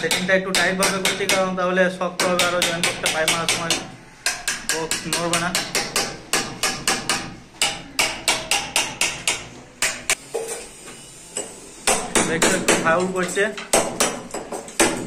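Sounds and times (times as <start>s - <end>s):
hammer striking chisel on brick: 0.0s - 1.6s, 2.2s - 10.2s, 13.7s - 15.0s.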